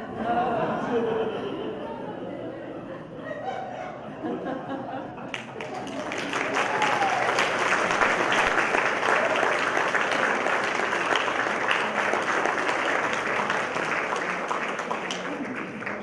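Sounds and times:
audience applauding: 5.3 - 16.0.

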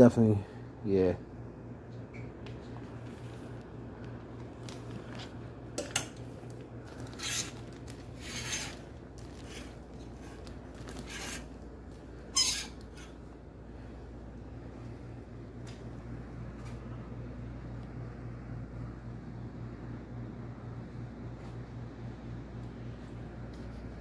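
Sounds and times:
low steady hum: 0.0 - 24.0
plastic garment bags rustling: 6.3 - 12.2.

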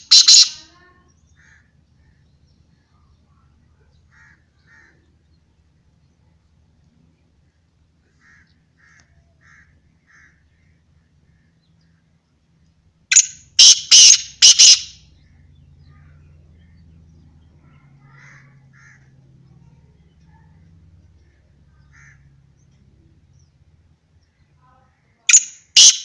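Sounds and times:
francolin harsh grating call: 0.0 - 0.6, 13.1 - 15.0.

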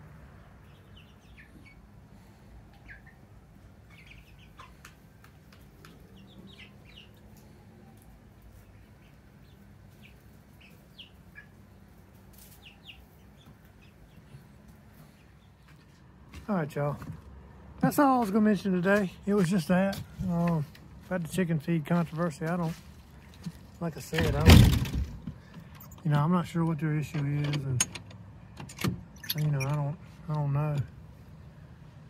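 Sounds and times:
chicks peeping: 0.3 - 16.0.

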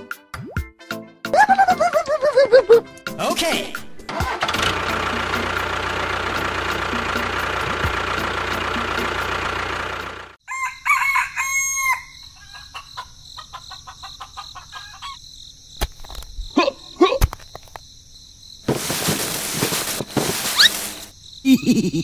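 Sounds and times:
rooster crowing: 10.4 - 13.0.

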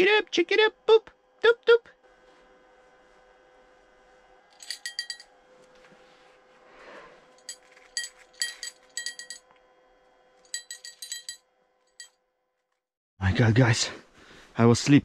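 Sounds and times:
small bell jingling: 4.6 - 5.3, 7.4 - 9.4, 10.5 - 11.4.

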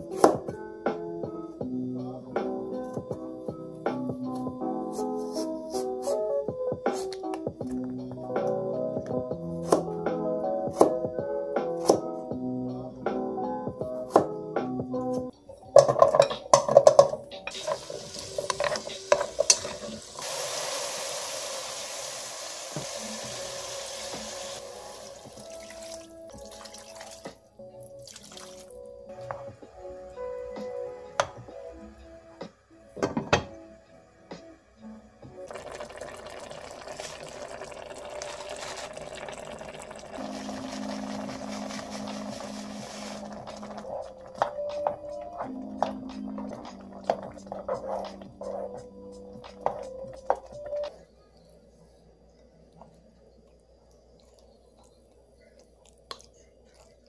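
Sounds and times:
vegetables clattering into metal pot: 15.8 - 20.0
pot hissing: 17.5 - 27.1, 35.4 - 44.4.

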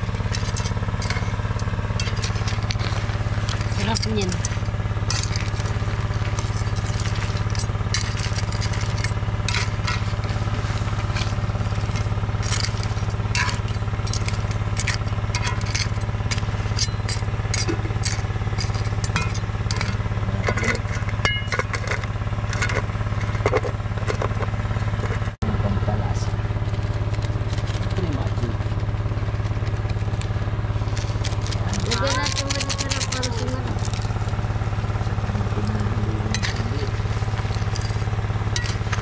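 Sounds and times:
metal spatula scraping a wok: 0.0 - 24.2
low engine hum: 0.0 - 39.0.

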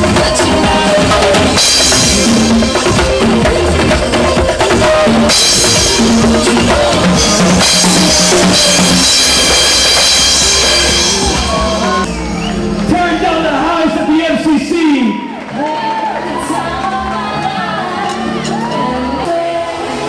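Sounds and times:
drum kit played hard: 0.0 - 15.0
backing music with bass line: 0.0 - 20.0
cymbal crashing: 1.6 - 13.6.

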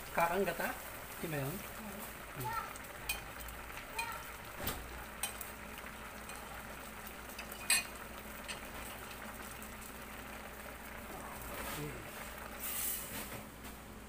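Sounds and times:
pot simmering hiss: 0.0 - 14.0
metal spoon clinking on plate: 7.6 - 7.9.

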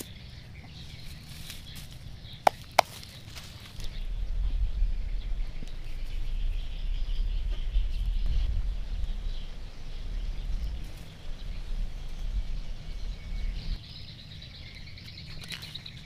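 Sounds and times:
insects and birds chirping: 0.0 - 16.0
low rumble: 3.5 - 15.0.

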